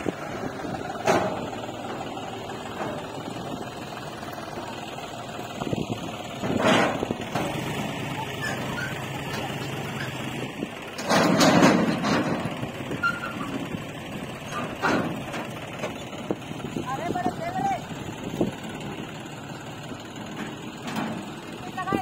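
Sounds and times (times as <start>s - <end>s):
diesel engines running: 0.0s - 22.0s.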